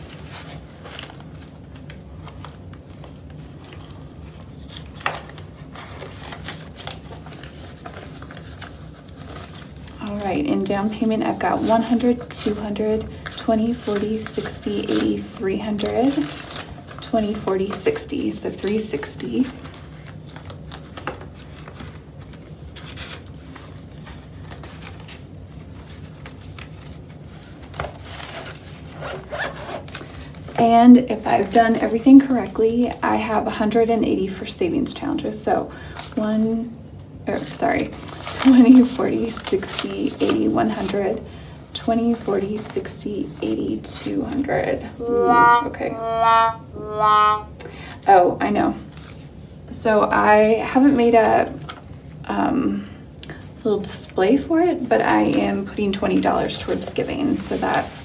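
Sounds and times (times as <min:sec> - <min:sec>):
paper banknotes rustling: 0:00.0 - 0:34.0, 0:37.4 - 0:45.0.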